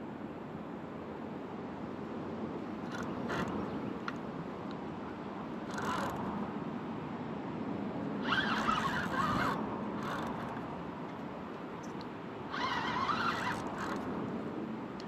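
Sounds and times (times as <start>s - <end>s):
fishing reel drag buzzing: 2.8s - 3.6s, 5.7s - 6.3s, 8.2s - 10.7s, 12.5s - 14.2s.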